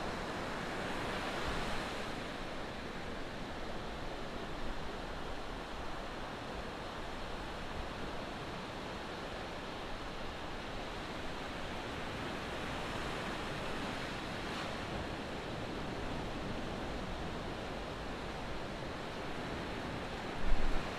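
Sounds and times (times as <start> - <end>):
waves breaking on beach: 7.3 - 20.9.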